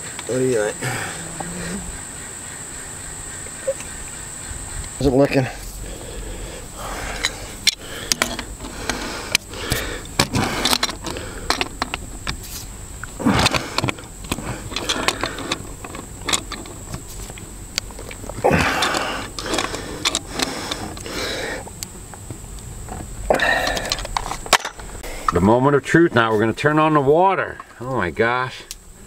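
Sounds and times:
rustling: 0.0s - 25.0s
metal clicks and scrapes: 7.2s - 12.7s, 13.3s - 21.1s.

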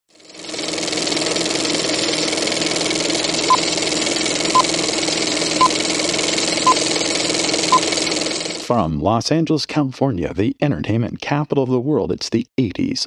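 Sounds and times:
machine whirring with low hum: 0.2s - 8.6s.

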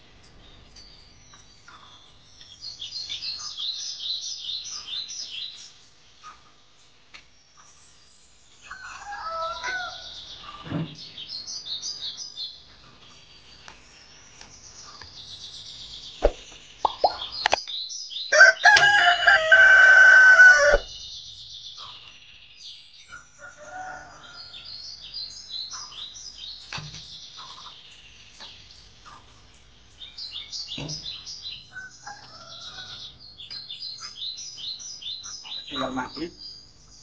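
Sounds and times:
small birds chirping: 0.0s - 37.0s
rooster crowing: 8.6s - 10.2s, 18.3s - 20.9s, 23.4s - 24.8s, 31.7s - 33.1s.

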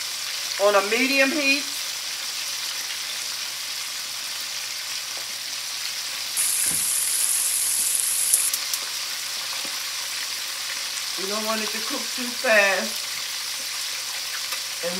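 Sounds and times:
food sizzling in deep fryer oil: 0.0s - 14.9s.

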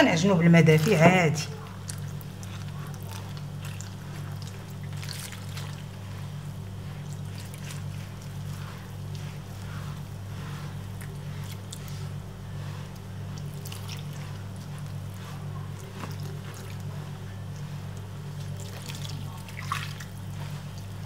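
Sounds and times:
hands kneading dough: 0.0s - 21.0s
steady low hum: 0.0s - 21.0s
water trickling onto flour: 0.0s - 21.0s.

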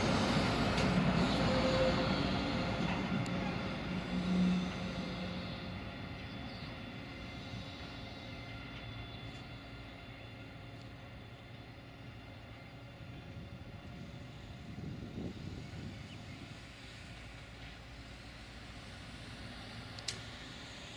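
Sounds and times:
diesel locomotive engine hum: 0.0s - 20.9s.

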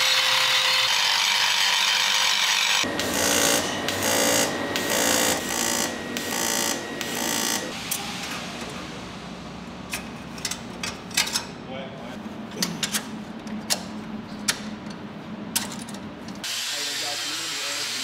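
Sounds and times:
grinder on metal: 0.0s - 7.8s.

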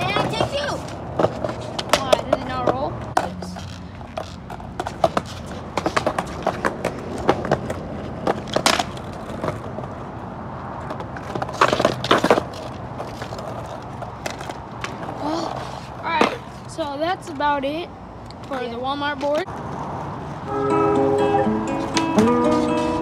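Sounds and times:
skateboard deck clacks: 0.0s - 9.9s, 10.8s - 16.5s
skateboard wheels rolling on asphalt: 0.0s - 23.0s.

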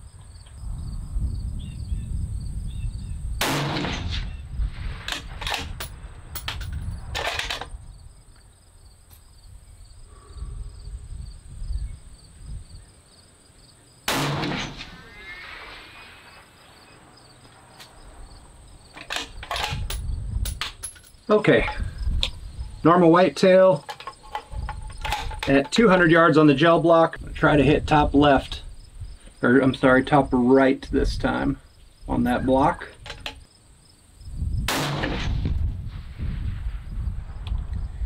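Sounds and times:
crickets chirping: 0.0s - 38.0s
rifle shots: 3.4s - 5.8s, 14.1s - 15.7s, 34.7s - 35.6s
sharp clicks and knocks: 23.8s - 25.8s, 33.0s - 33.4s.

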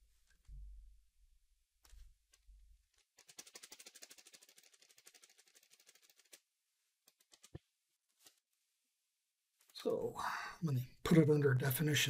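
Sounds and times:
rapid keyboard typing: 1.9s - 7.6s.

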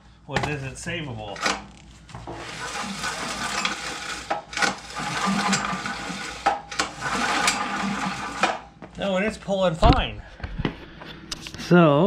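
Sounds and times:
recoil starter rope whirring: 2.3s - 8.7s
engine turning over: 2.4s - 8.6s.

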